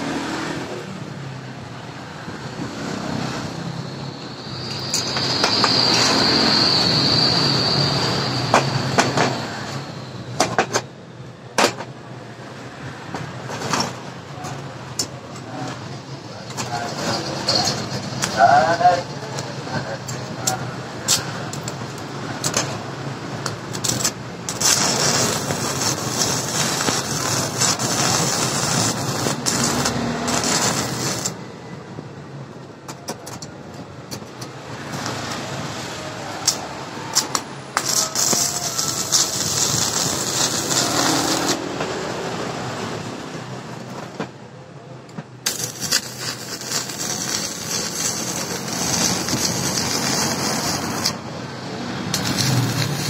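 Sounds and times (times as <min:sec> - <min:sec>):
welding arc crackling and hissing: 0:02.3 - 0:10.8, 0:13.3 - 0:31.4, 0:34.8 - 0:42.6, 0:45.4 - 0:53.0.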